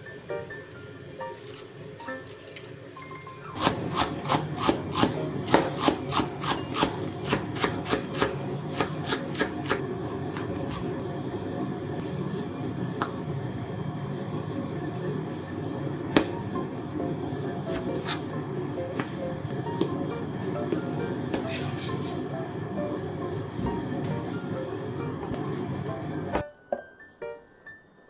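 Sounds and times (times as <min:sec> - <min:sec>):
knife chopping cabbage on board: 0:03.6 - 0:09.8, 0:17.7 - 0:18.2.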